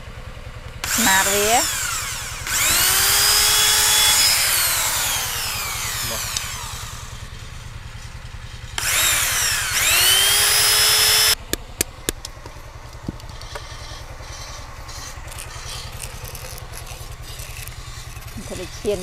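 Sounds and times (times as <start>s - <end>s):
low hum: 0.0s - 19.0s
power tool cutting wood: 0.8s - 11.4s, 13.4s - 19.0s.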